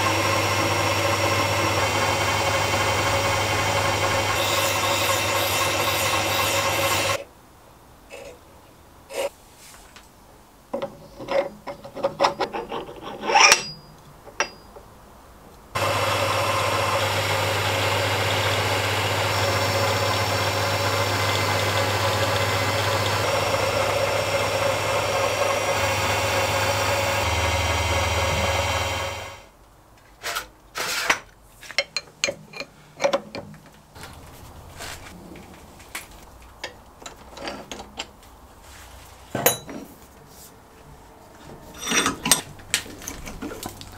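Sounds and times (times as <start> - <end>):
metal lathe running: 0.0 - 7.2, 15.8 - 29.5
metal parts clinking: 12.0 - 14.7.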